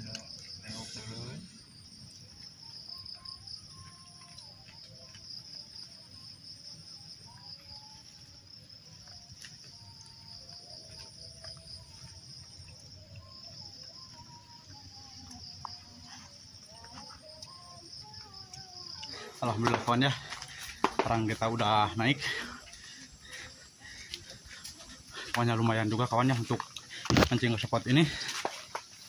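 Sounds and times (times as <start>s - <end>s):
insects chirring: 0.0s - 29.0s.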